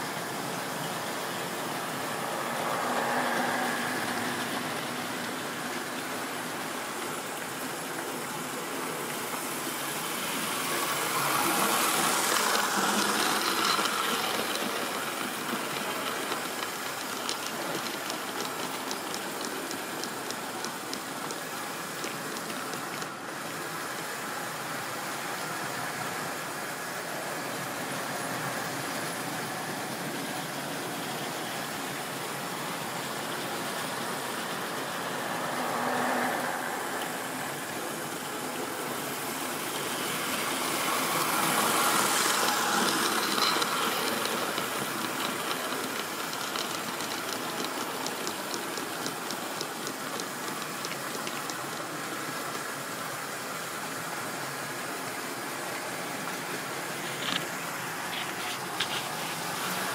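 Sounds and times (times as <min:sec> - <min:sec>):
model train wheels rumbling: 0:00.0 - 0:52.9.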